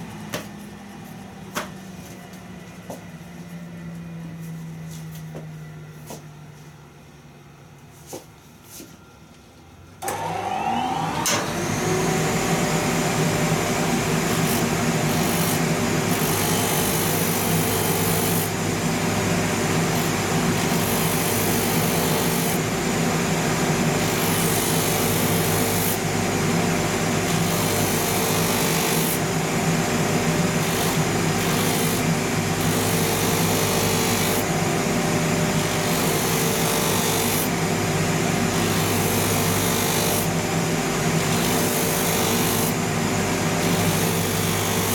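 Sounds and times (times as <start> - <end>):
machine motor whining and humming: 9.3 - 44.9.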